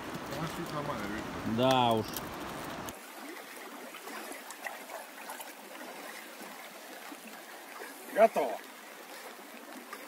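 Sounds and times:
river water running: 0.0s - 10.0s
faint small splashes: 0.2s - 10.0s.

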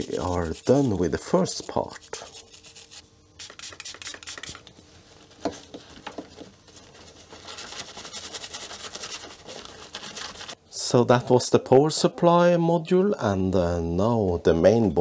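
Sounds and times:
brush scrubbing circuit board: 0.0s - 4.6s.

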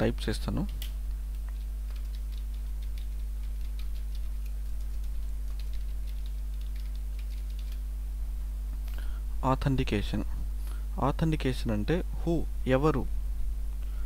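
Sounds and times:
low electrical hum: 0.0s - 14.0s
computer keyboard typing: 0.6s - 7.9s.

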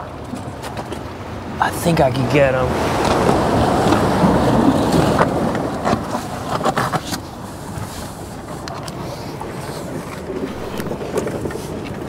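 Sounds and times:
surf on rocks: 0.0s - 12.0s
wind rushing: 7.3s - 12.0s.

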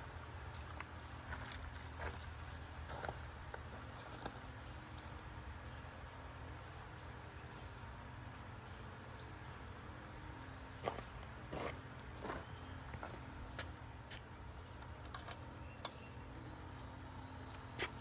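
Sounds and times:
low hum: 14.6s - 18.0s.

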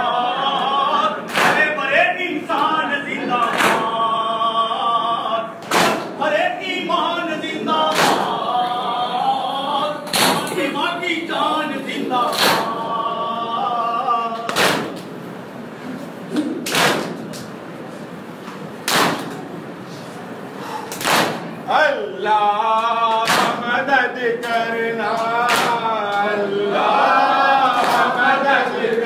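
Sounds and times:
man chanting a lament: 0.0s - 14.7s, 21.7s - 29.0s
hands slapping chests in unison: 1.3s - 1.7s, 3.4s - 3.9s, 5.6s - 6.2s, 7.9s - 8.4s, 10.1s - 10.6s, 12.3s - 12.8s, 14.4s - 15.1s, 16.6s - 17.5s, 18.8s - 19.4s, 20.9s - 21.5s, 23.2s - 23.6s, 25.2s - 26.2s, 27.8s - 28.2s.

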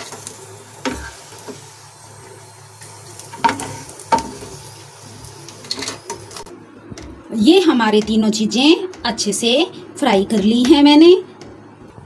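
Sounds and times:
almonds sizzling in ghee: 0.0s - 6.5s.

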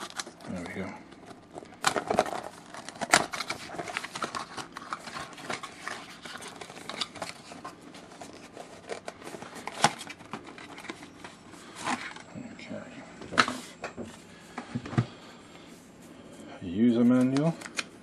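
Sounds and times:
cardboard and plastic rustling: 0.0s - 12.4s.

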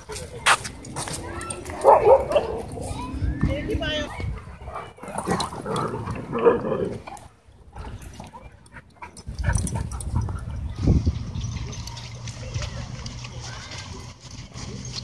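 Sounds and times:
dogs vocalizing while playing: 4.2s - 10.8s.

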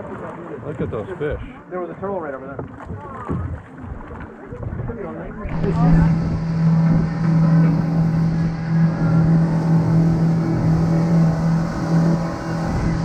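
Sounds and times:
water and wind rushing: 0.0s - 13.0s
motorboat engine droning: 5.2s - 13.0s.

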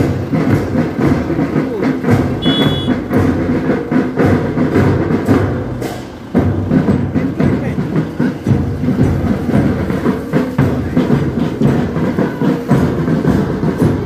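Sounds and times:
pounding drumbeat: 0.0s - 14.0s
loud music: 2.4s - 2.9s.

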